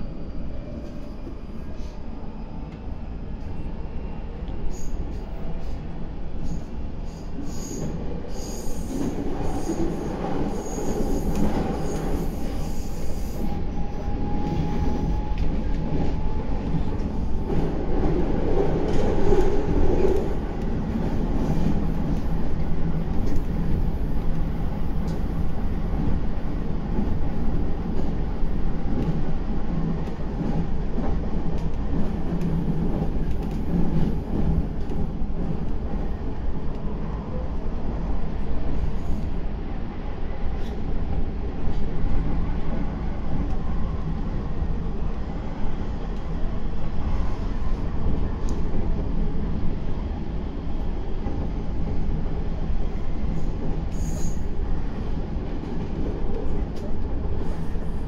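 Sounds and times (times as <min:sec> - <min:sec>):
train wheels rumbling on rail: 0:04.3 - 0:58.0.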